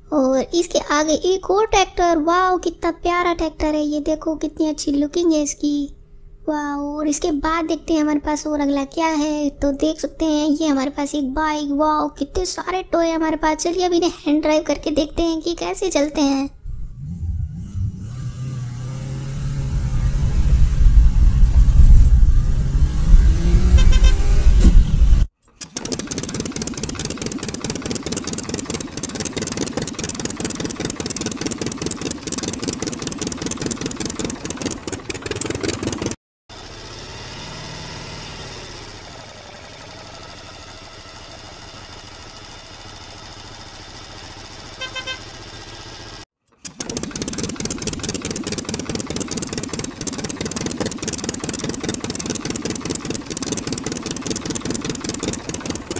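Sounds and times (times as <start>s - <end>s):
engine low rumble: 16.6s - 25.3s
engine humming: 16.6s - 55.9s
rattling engine beat: 18.4s - 36.9s, 46.6s - 55.9s.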